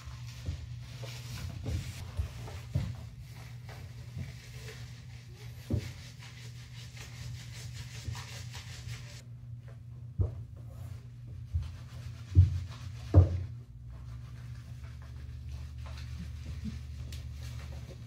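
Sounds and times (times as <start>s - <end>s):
hands rubbing soapy lather: 3.2s - 9.2s.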